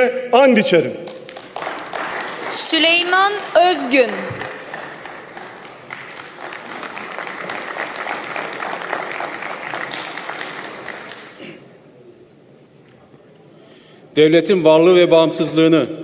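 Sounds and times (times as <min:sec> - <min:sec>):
crowd applauding: 0:01.0 - 0:11.8.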